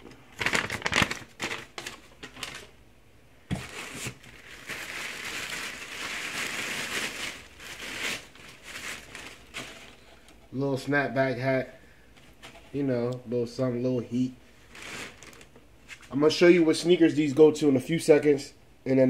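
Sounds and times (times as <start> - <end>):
paper crinkling and rustling: 0.0 - 2.7, 3.5 - 10.3, 14.6 - 16.2.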